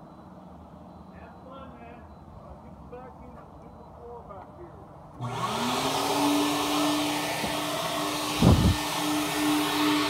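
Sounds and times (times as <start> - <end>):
vacuum motor whining: 5.2 - 10.0.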